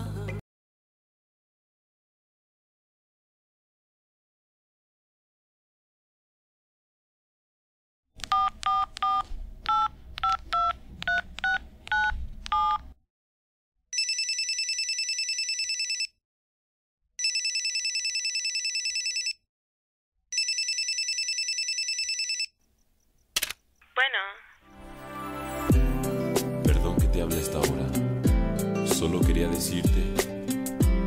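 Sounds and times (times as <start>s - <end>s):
telephone keypad beeps: 8.3s - 12.8s
telephone ringing: 14.0s - 16.2s, 17.2s - 19.4s, 20.3s - 22.6s.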